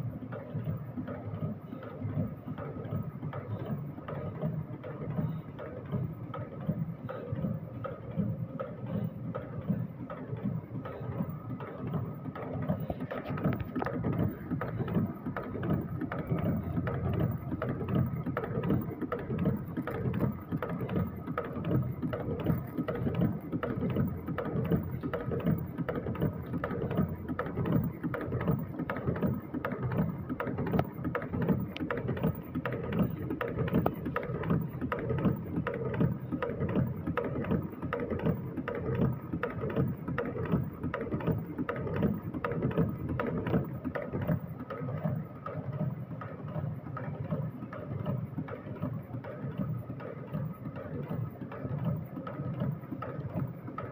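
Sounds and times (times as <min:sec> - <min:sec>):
machine hum: 0:00.0 - 0:53.9
machine clattering: 0:00.5 - 0:53.9.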